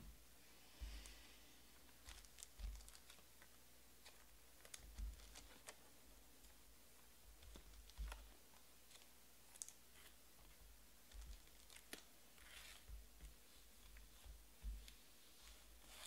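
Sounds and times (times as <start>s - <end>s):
faint clicks and taps: 6.4s - 9.8s.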